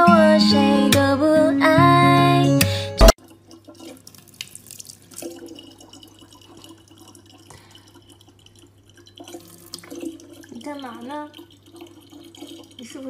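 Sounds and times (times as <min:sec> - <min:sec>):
water trickling into plastic jug: 0:03.2 - 0:13.0.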